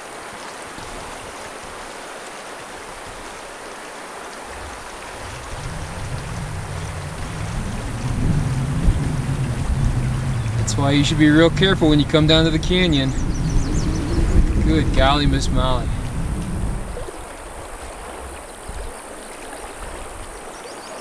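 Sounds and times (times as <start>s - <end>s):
low rumble: 5.1s - 18.9s.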